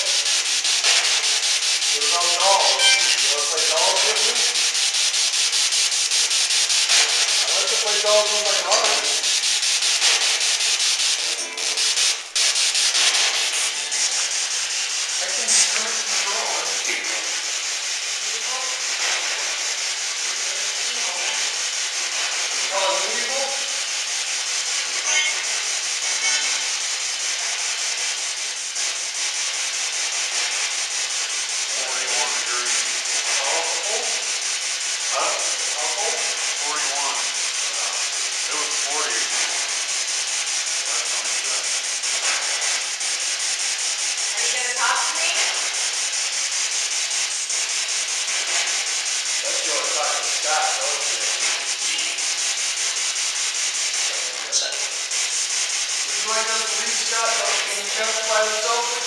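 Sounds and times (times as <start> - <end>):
radio static hiss: 0.0 - 28.0, 30.2 - 59.0
fragments of broadcast voices: 1.9 - 4.7, 6.9 - 10.4, 15.1 - 17.4, 22.2 - 23.8, 31.8 - 34.3, 35.0 - 39.6, 44.3 - 45.7, 49.4 - 52.3, 54.0 - 55.0, 56.0 - 59.0.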